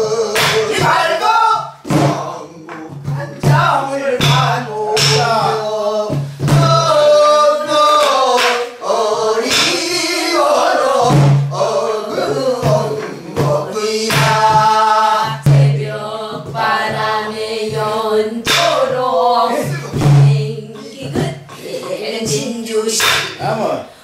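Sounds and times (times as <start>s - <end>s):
woman and man singing folk song: 0.0s - 24.0s
barrel drum strikes: 0.4s - 1.2s, 1.8s - 7.1s, 9.4s - 9.9s, 11.0s - 22.4s, 23.0s - 23.6s.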